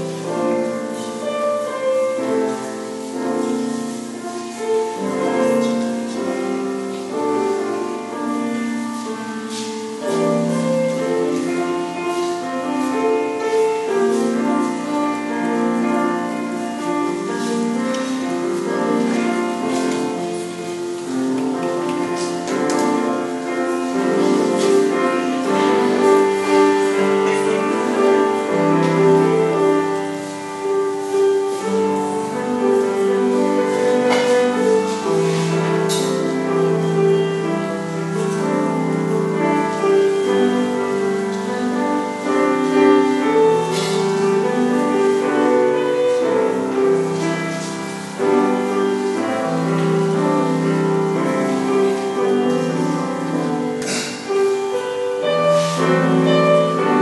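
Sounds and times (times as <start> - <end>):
slow instrumental music: 0.0 - 57.0.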